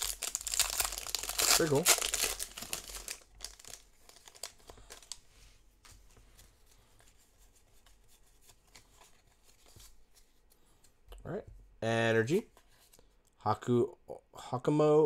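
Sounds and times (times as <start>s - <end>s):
foil wrapper crinkling and tearing: 0.0s - 5.2s
cards rustling and crackling: 0.0s - 11.0s.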